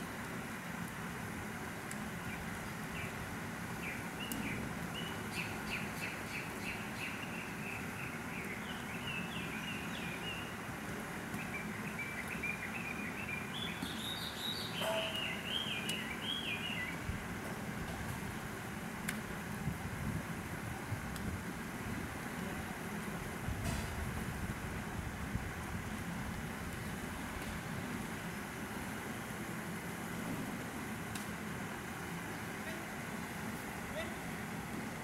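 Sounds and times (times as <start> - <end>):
outdoor background hiss: 0.0 - 35.0
songbird chirping: 11.4 - 17.0.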